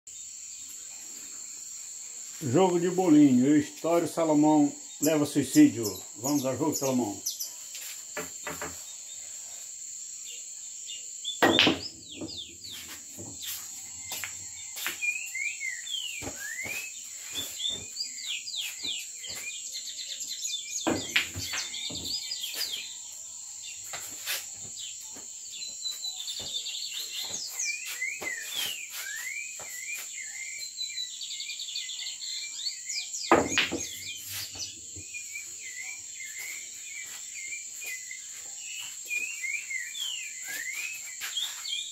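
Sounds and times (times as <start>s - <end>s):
insect chirring: 0.1s - 41.9s
bird-like chirps: 10.3s - 41.9s
pool cue striking balls: 11.4s - 12.0s, 33.3s - 34.0s.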